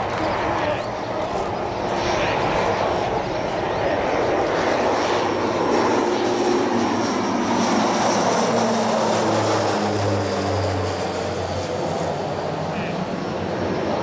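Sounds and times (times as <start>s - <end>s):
propeller planes flying past: 0.0s - 14.0s.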